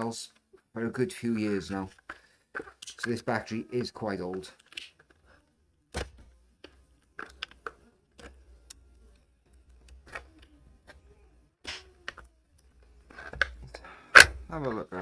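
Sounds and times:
hands handling battery pack: 0:01.4 - 0:05.3.

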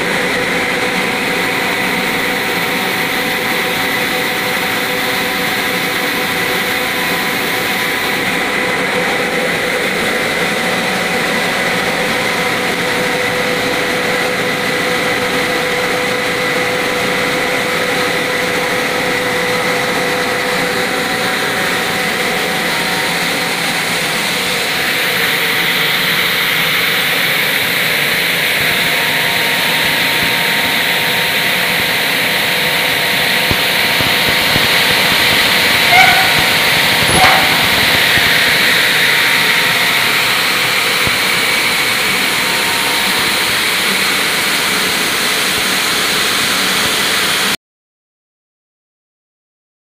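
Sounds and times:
machine whining tones: 0:00.0 - 0:45.6
recycling machine drone: 0:00.0 - 0:47.5.

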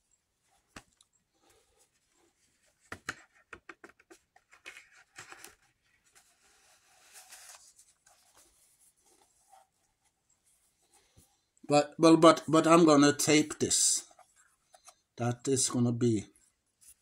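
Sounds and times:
soft cardboard rustle: 0:00.2 - 0:11.6, 0:13.9 - 0:15.2, 0:16.2 - 0:17.0.

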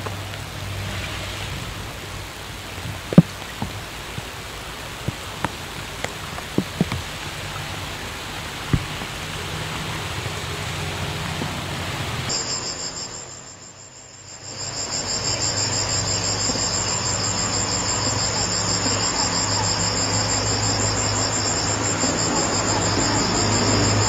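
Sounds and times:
steady outdoor hiss: 0:00.0 - 0:24.0
low hum: 0:06.6 - 0:24.0.

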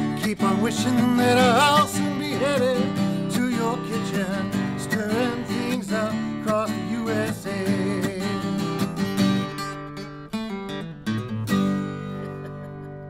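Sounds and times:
man singing: 0:00.0 - 0:09.0
acoustic guitar strumming: 0:00.0 - 0:13.0.

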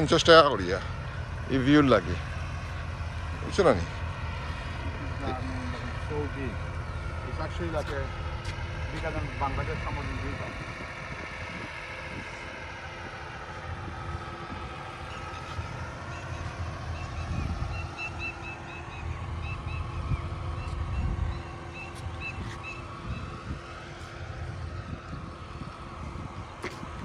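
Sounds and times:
distant vehicle engine hum: 0:00.0 - 0:27.0
wind buffeting microphone: 0:00.0 - 0:27.0.

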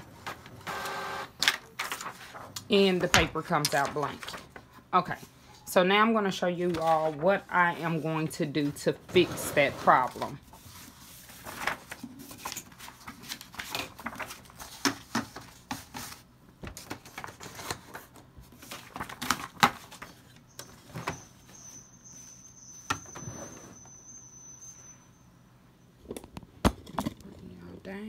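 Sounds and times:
paper rustling and clicking: 0:01.4 - 0:02.7, 0:11.3 - 0:21.0
thin high whine: 0:20.5 - 0:25.9.

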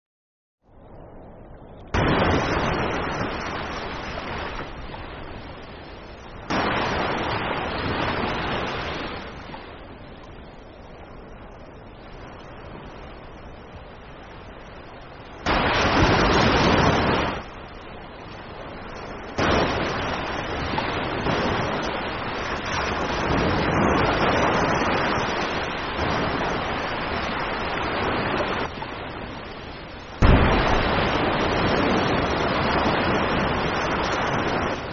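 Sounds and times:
whale splashing on water: 0:30.2 - 0:34.9.

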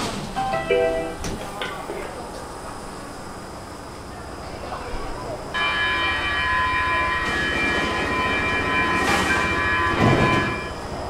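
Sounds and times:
train rolling noise: 0:00.0 - 0:11.0
train wheels squealing on rails: 0:05.0 - 0:11.0.

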